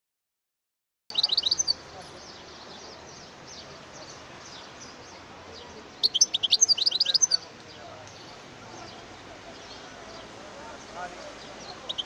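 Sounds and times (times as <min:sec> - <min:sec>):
faint thin bird chirps: 0:01.1 - 0:01.8, 0:06.0 - 0:07.5
goldfinch song: 0:01.1 - 0:12.0
outdoor background hiss: 0:01.1 - 0:12.0.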